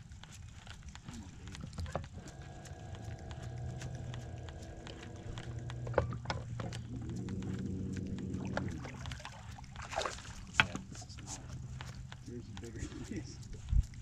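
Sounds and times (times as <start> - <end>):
light clicks and knocks: 0.2 - 14.0
electric motor humming: 0.9 - 9.7.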